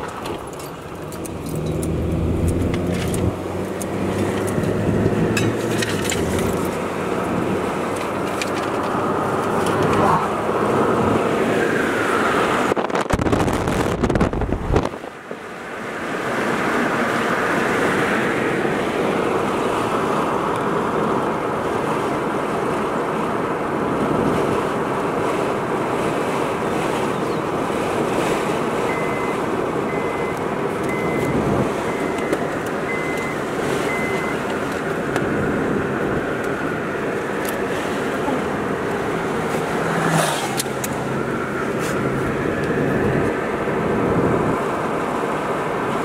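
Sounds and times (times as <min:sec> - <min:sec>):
tyre and wind noise: 0:00.0 - 0:15.4, 0:17.7 - 0:46.0
faint short beeps: 0:28.9 - 0:34.5.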